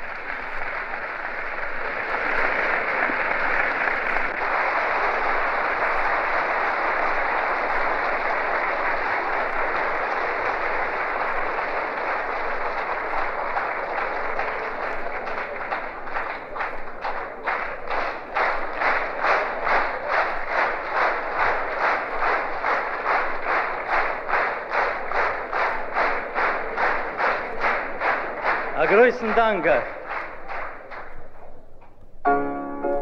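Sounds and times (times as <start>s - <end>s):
audience applauding: 0.0s - 33.0s.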